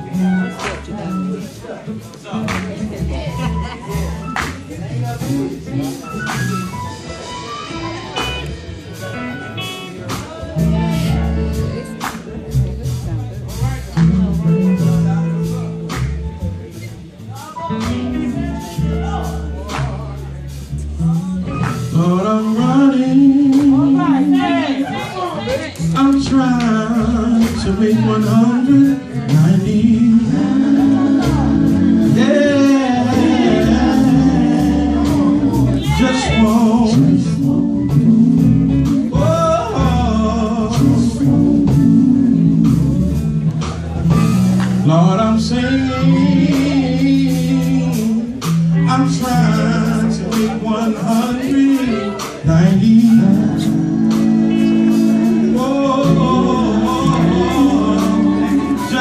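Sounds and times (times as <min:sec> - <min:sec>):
amplified guitar: 0:00.0 - 0:59.0
male group singing gospel: 0:21.0 - 0:59.0.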